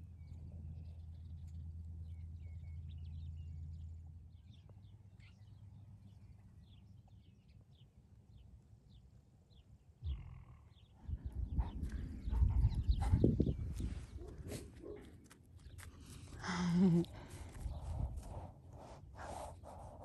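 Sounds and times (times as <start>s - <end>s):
small birds chirping: 0.0s - 20.0s
low steady rumble: 10.0s - 14.9s, 15.9s - 20.0s.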